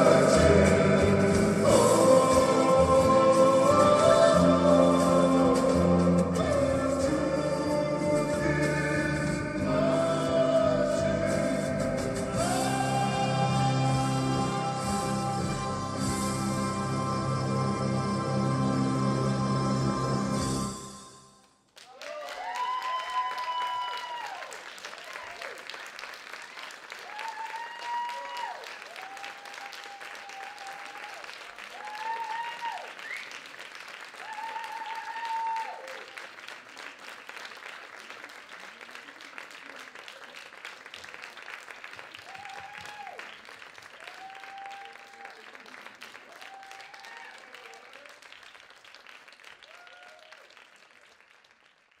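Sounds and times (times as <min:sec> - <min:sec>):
audience applauding: 0:21.7 - 0:52.0
high-pitched whooping cheers: 0:21.9 - 0:25.6, 0:27.0 - 0:33.2, 0:34.2 - 0:36.2, 0:42.2 - 0:43.3, 0:44.0 - 0:45.6, 0:46.3 - 0:48.2, 0:49.6 - 0:50.5.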